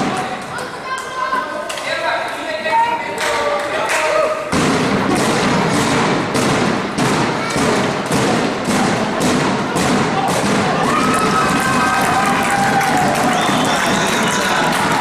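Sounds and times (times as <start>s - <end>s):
crowd noise: 0.0s - 15.0s
crowd thumping a beat: 4.4s - 15.0s
people shouting: 10.1s - 15.0s.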